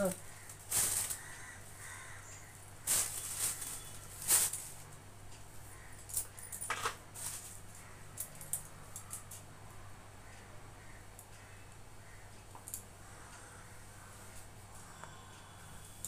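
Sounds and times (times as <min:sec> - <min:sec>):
plastic bags rustling: 0:00.0 - 0:05.0, 0:06.4 - 0:07.9
low steady hum: 0:00.0 - 0:16.0.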